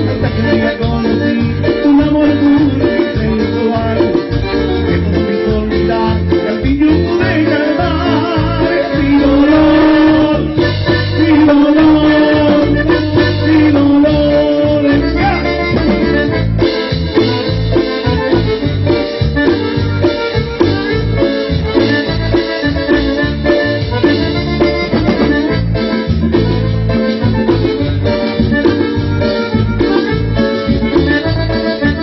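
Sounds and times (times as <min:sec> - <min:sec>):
accordion melody: 0:00.0 - 0:32.0
bass and drum beat: 0:00.0 - 0:32.0.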